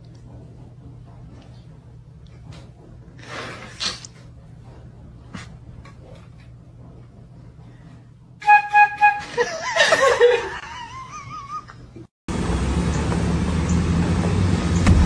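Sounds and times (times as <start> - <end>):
flute notes: 8.4 - 9.6
woman laughing: 9.2 - 11.9.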